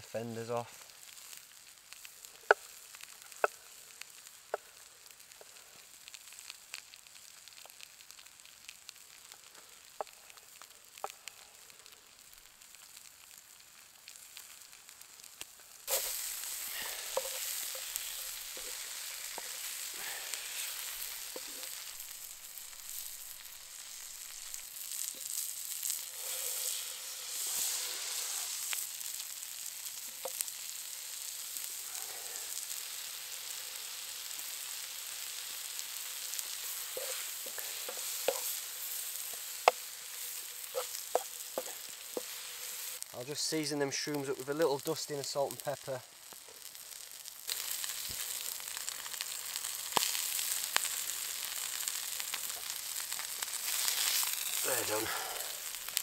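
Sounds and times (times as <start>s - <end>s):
food sizzling in a pan: 0.0s - 56.0s.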